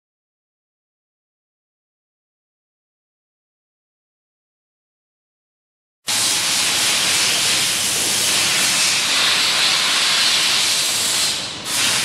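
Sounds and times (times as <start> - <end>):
compressed air hissing: 6.1 - 12.0.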